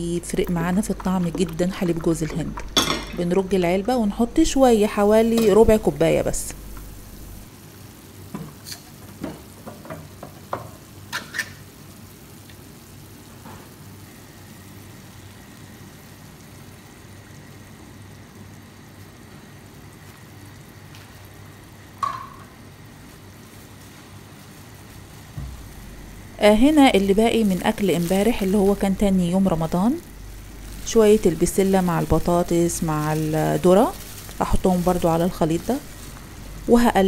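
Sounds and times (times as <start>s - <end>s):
sauce simmering and sizzling: 0.0s - 37.0s
knock: 25.4s - 25.7s.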